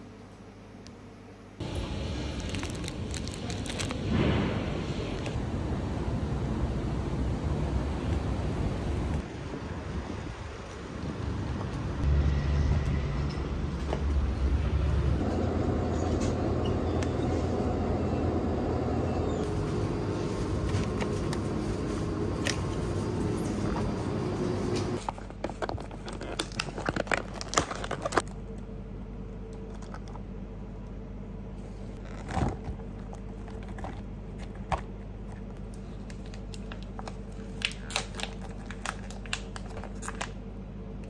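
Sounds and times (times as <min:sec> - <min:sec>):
steady shop hum: 0:00.0 - 0:41.0
street traffic: 0:01.6 - 0:25.0
plastic packaging crinkling: 0:02.2 - 0:04.0, 0:25.0 - 0:28.3, 0:32.0 - 0:40.4.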